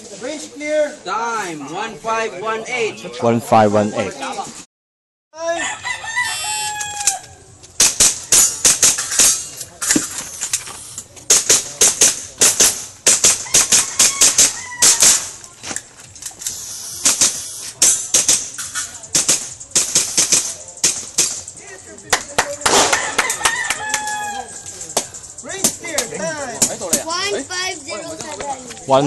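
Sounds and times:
rooster crowing: 0:05.4 - 0:07.5, 0:13.3 - 0:15.4, 0:22.9 - 0:24.6.

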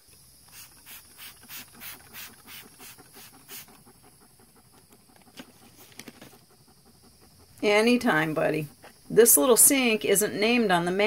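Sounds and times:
dog panting: 0:02.0 - 0:09.4.

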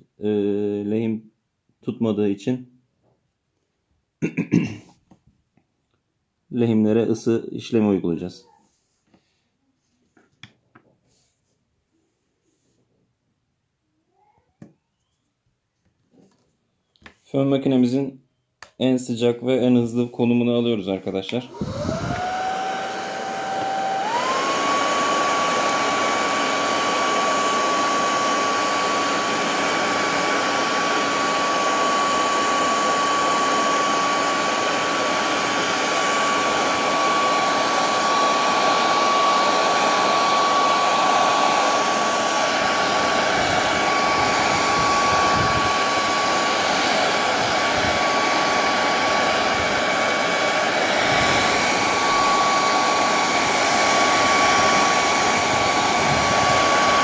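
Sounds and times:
hair dryer running: 0:20.9 - 0:57.0.

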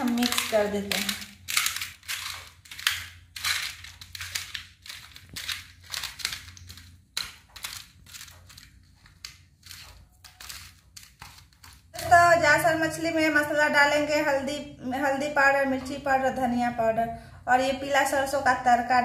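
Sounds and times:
hands mixing wet fish: 0:00.0 - 0:12.7.

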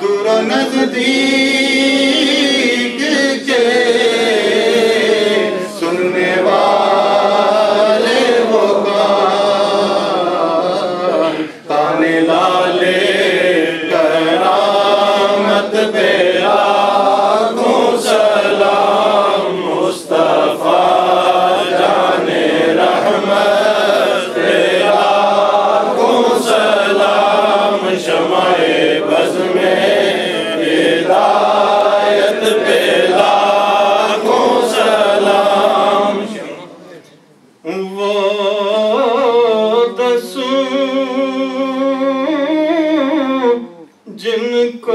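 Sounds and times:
man chanting into a microphone: 0:00.0 - 0:04.2, 0:35.9 - 0:44.9.

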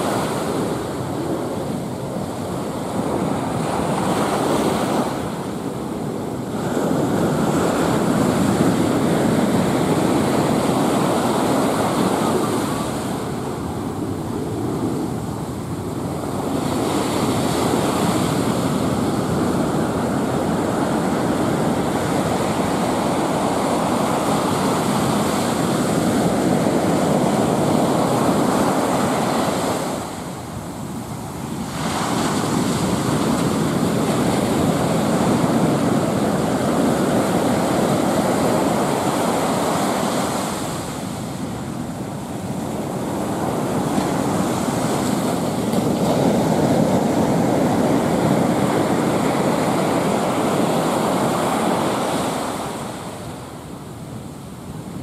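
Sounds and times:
surf washing up a beach: 0:00.0 - 0:55.0.

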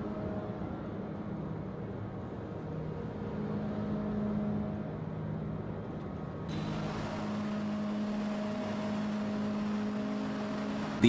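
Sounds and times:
forging machine humming: 0:06.5 - 0:11.0.

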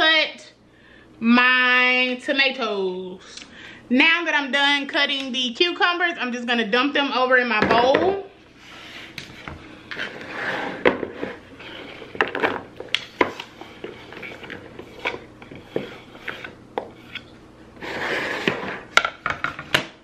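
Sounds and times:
scraping on cutting board: 0:08.6 - 0:19.7.

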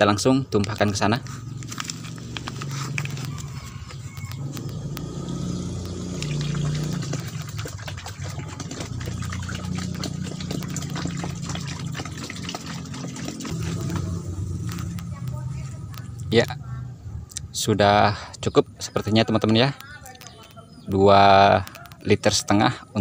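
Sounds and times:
low engine-like hum: 0:00.9 - 0:17.6
liquid pouring and splashing: 0:01.7 - 0:15.1.

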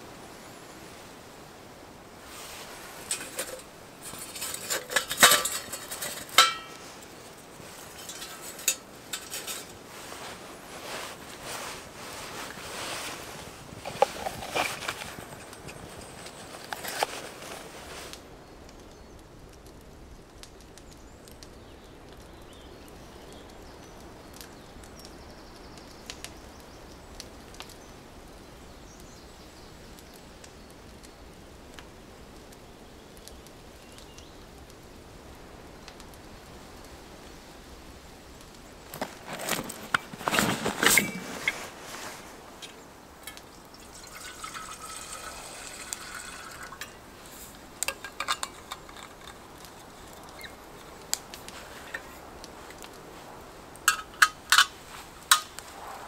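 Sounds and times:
metal cookware clattering: 0:03.0 - 0:09.8, 0:39.3 - 0:41.7, 0:42.6 - 0:50.6, 0:53.9 - 0:55.5
liquid pouring: 0:43.2 - 0:49.4.

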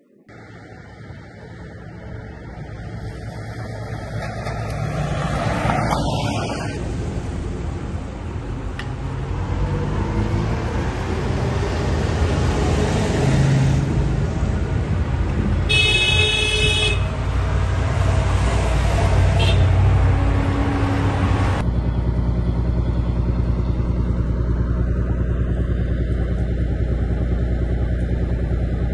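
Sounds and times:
armoured vehicles driving past: 0:00.3 - 0:28.9
vehicle horn blast: 0:15.7 - 0:17.2, 0:19.3 - 0:19.9.

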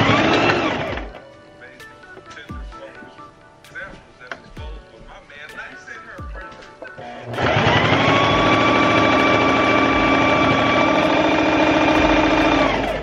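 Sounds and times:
sewing machine whirring: 0:00.0 - 0:01.2, 0:07.0 - 0:13.0.

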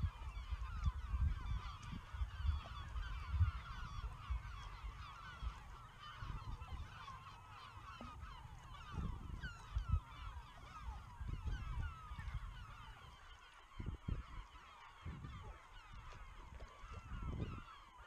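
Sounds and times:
flock of birds calling: 0:00.0 - 0:18.0
low rumbling gusts: 0:08.2 - 0:10.2.

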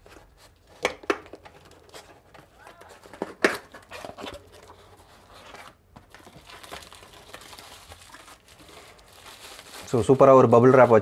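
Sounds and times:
bubble wrap crinkling: 0:03.7 - 0:11.0.

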